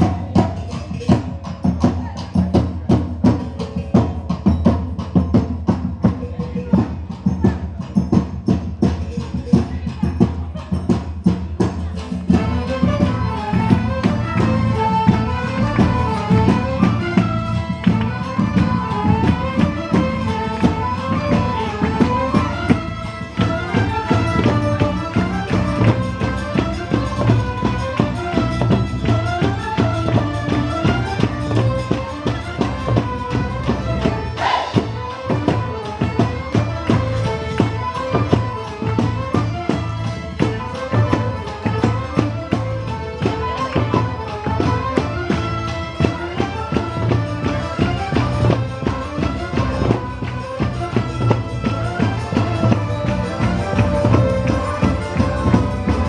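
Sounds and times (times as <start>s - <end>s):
drum and tambourine beat: 0.0s - 56.0s
fiddles playing fast melody: 11.8s - 56.0s.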